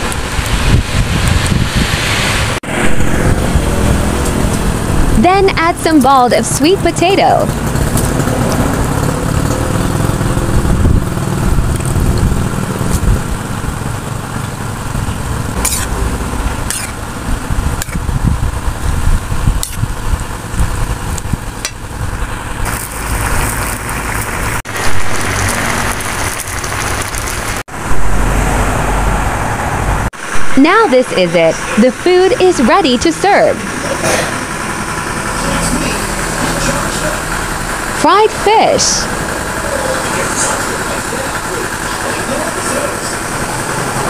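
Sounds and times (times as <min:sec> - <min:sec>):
steady low rumble: 0:00.0 - 0:44.0
stew simmering: 0:22.6 - 0:27.7.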